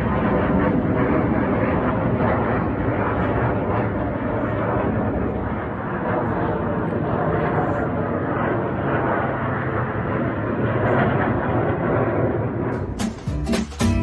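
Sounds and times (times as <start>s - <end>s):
aircraft engines flying over: 0.0s - 14.0s
strummed acoustic guitar music: 12.8s - 14.0s.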